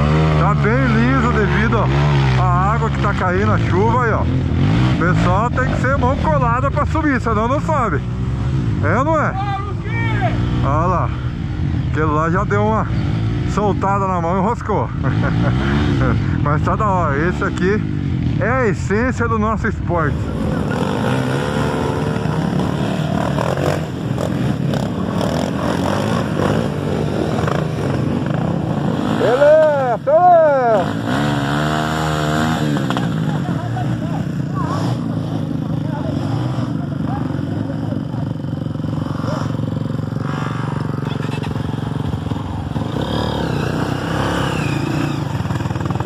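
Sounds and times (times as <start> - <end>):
motorcycle engines revving: 0.0 - 46.0.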